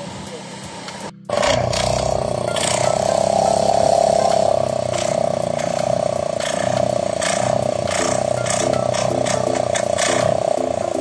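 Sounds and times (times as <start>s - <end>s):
boat engine clattering: 1.0s - 11.0s.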